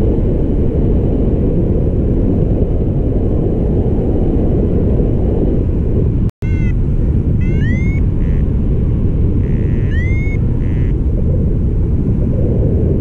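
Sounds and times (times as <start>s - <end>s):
wind rushing over microphone: 0.0s - 13.0s
short rising chirps: 6.4s - 6.8s, 7.4s - 8.4s, 9.5s - 10.9s.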